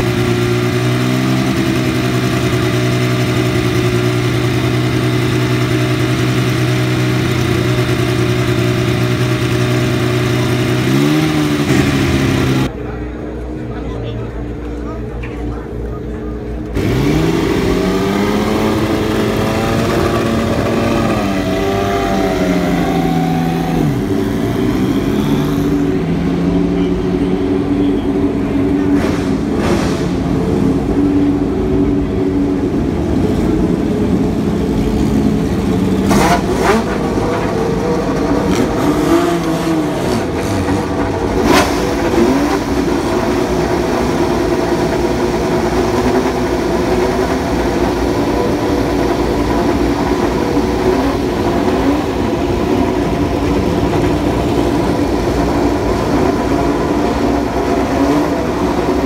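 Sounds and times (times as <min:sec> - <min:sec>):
racing car engine revving: 0:00.0 - 0:12.8, 0:16.5 - 0:59.0
engine sharp cracks: 0:28.9 - 0:30.8.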